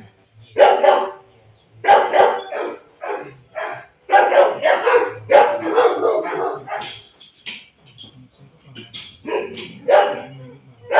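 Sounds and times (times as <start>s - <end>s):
dog barking: 0.6s - 7.1s, 9.2s - 10.9s.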